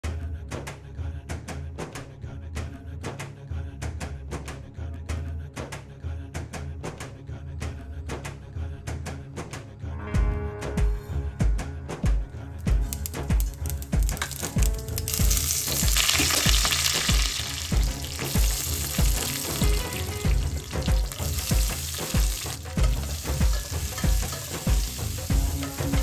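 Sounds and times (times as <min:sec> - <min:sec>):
background music bass beat: 0:10.2 - 0:26.0
spices sizzling in hot oil: 0:12.7 - 0:26.0
onions stirred in pot: 0:12.8 - 0:26.0.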